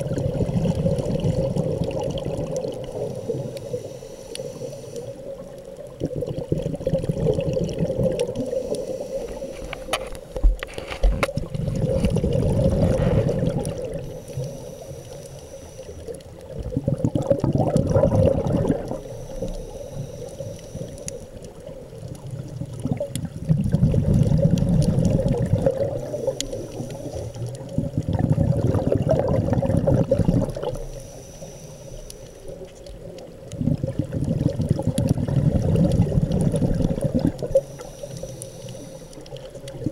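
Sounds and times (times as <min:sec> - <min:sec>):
exhaled bubbles burbling underwater: 0:00.0 - 0:15.1, 0:15.8 - 0:31.2, 0:32.4 - 0:39.9
regulator inhalations: 0:02.8 - 0:05.4, 0:08.4 - 0:10.3, 0:12.8 - 0:16.2, 0:18.9 - 0:21.4, 0:25.9 - 0:27.5, 0:30.7 - 0:32.7, 0:37.5 - 0:39.5.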